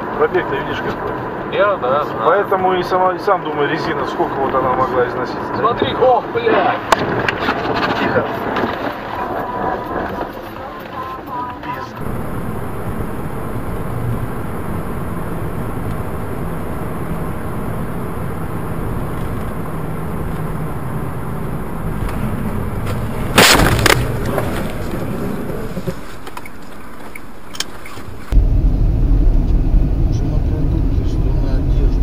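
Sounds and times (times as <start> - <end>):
car road and engine noise: 0.0 - 6.4, 7.0 - 32.0
car crash: 22.0 - 26.4.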